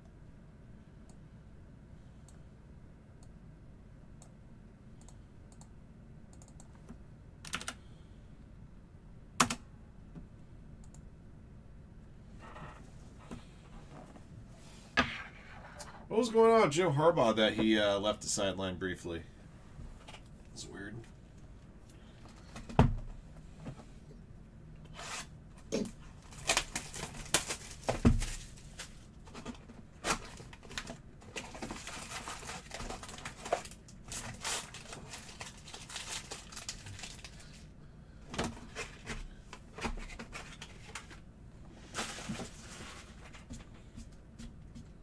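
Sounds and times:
tearing and crinkling of wrappers: 26.2s - 29.0s, 30.0s - 37.7s.

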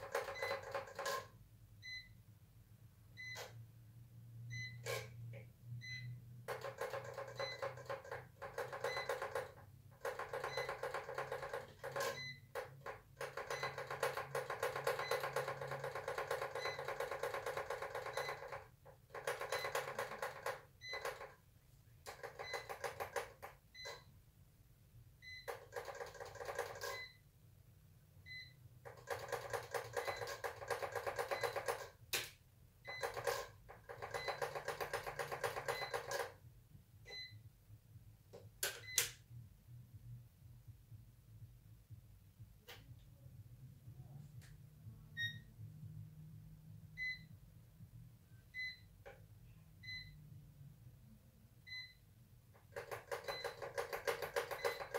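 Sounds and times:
music with a steady beat: 39.4s - 45.0s.

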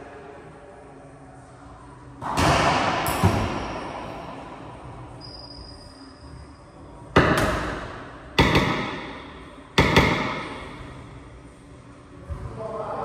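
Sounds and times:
ball hitting wall: 2.2s - 4.1s, 7.2s - 10.7s
racquet striking ball: 2.2s - 4.2s, 7.1s - 10.8s.

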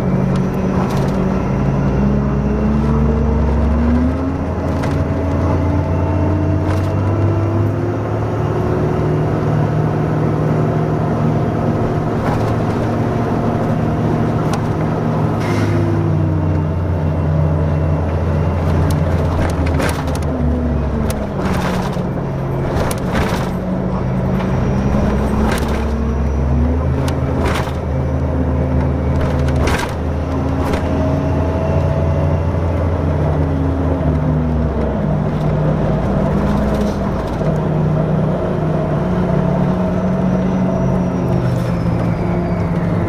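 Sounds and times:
bus engine hum: 0.0s - 43.0s
clicks and rattles: 18.6s - 26.0s, 27.0s - 28.0s, 29.1s - 31.0s.

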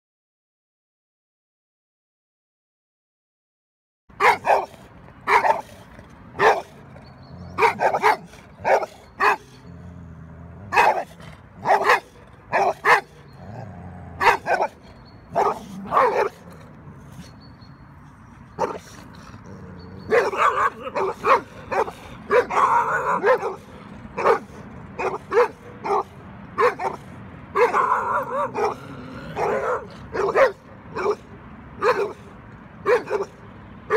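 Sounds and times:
dogs barking: 4.1s - 33.9s.

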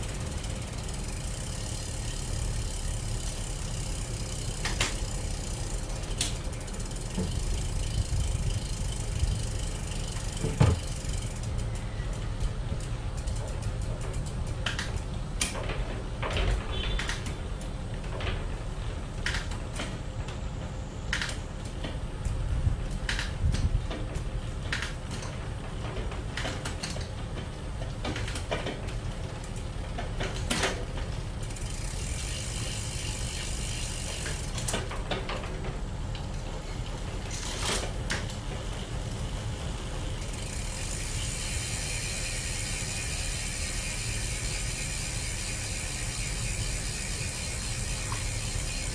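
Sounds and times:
bicycle freehub ratcheting: 0.0s - 20.0s, 21.1s - 48.9s.

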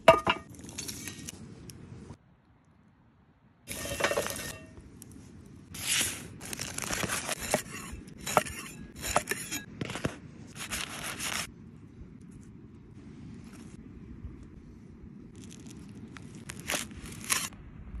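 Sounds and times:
aluminium foil crinkling and tearing: 5.8s - 7.7s, 10.6s - 11.5s, 15.3s - 17.5s.

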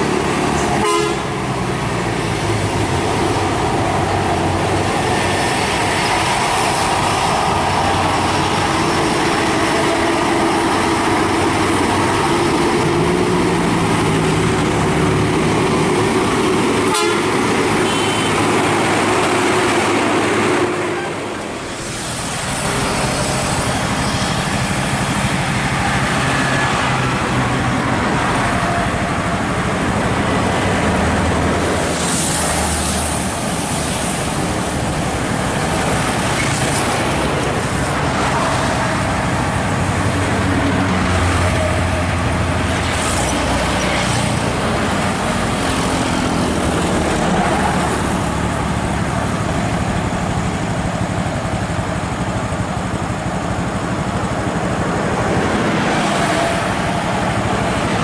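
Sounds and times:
heavy trucks passing: 0.0s - 58.0s
truck horn toots: 0.8s - 1.3s, 16.9s - 18.4s.

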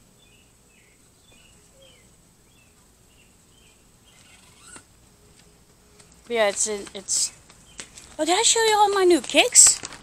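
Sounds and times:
bird chirping: 0.2s - 8.2s
high insect-like hum: 4.0s - 5.1s.

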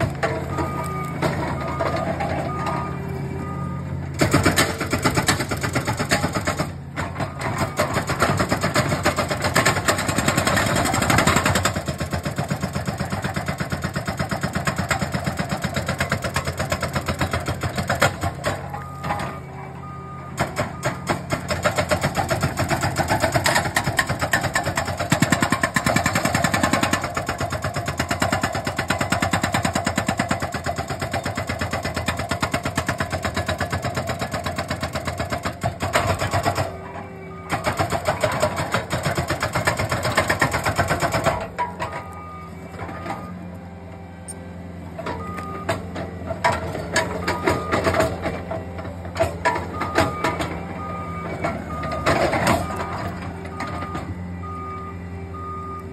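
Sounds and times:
diesel engine running: 0.0s - 55.9s
backup alarm beeping: 0.4s - 3.8s, 18.6s - 21.1s, 41.8s - 43.5s, 49.7s - 55.9s
hydraulic breaker hammering rock: 4.2s - 19.4s, 20.3s - 36.9s, 37.5s - 43.4s, 45.0s - 50.7s.

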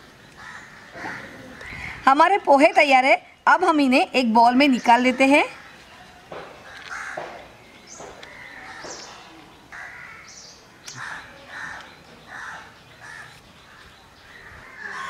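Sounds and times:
crows cawing: 0.4s - 2.0s, 6.6s - 7.5s, 8.2s - 10.4s, 11.0s - 13.8s, 14.4s - 15.0s.

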